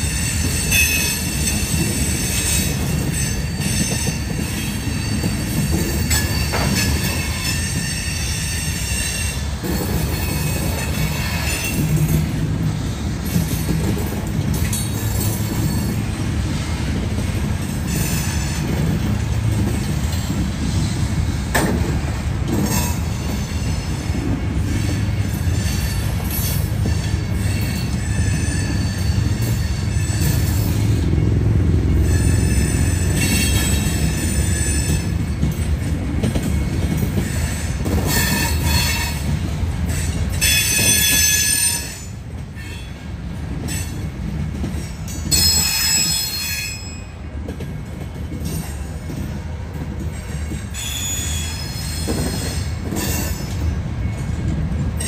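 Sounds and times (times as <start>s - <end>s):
high-pitched wheel squeal: 0.0s - 11.9s, 24.6s - 31.0s, 31.9s - 35.2s, 37.2s - 39.3s, 39.9s - 42.9s, 45.3s - 47.2s, 50.4s - 53.6s
rumble of train wheels on rail: 0.0s - 55.0s.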